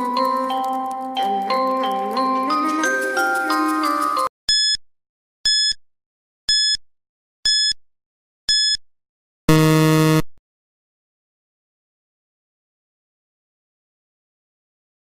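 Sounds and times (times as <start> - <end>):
low buzzer: 9.5 - 10.4.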